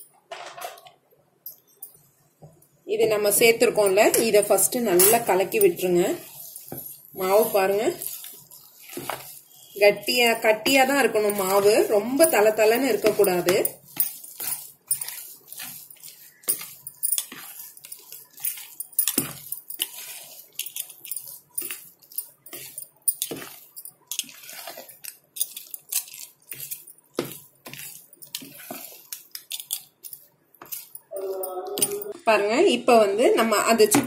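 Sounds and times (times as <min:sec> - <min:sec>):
metal spoon scraping plastic bowl: 0:03.3 - 0:30.0.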